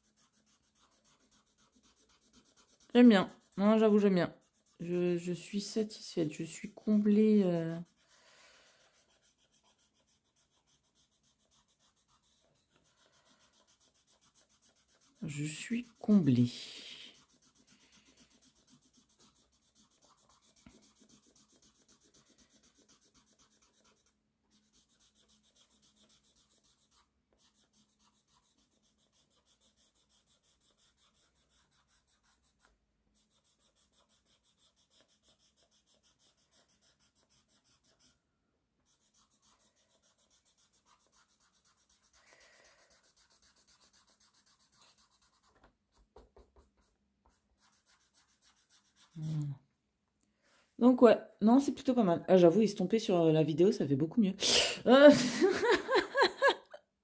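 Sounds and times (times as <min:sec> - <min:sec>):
blending stump rubbing on paper: 0:00.0 - 0:38.2, 0:38.9 - 0:45.6.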